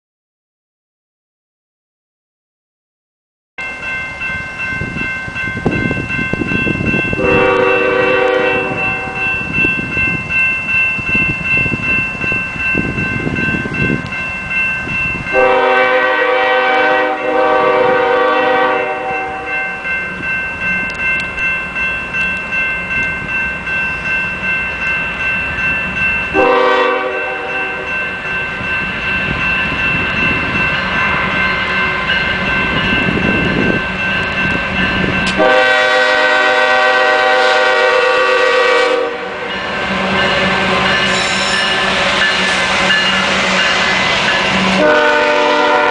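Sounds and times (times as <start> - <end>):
crossing bell ringing: 3.6 - 45.9
locomotive horn blasts: 7.2 - 9.2, 15.3 - 19.6, 26.3 - 27.9, 35.3 - 39.5, 44.7 - 45.9.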